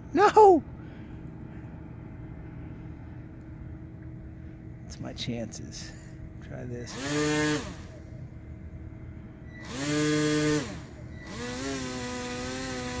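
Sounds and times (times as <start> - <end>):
electric motor and propeller whine: 6.2 - 13.0.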